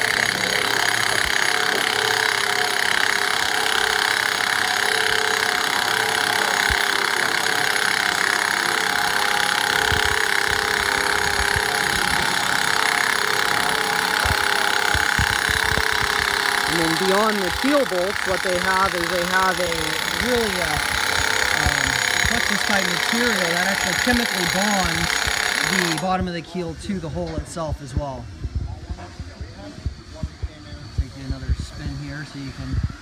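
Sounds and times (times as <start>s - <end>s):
pneumatic wrench whining: 0.0s - 26.2s.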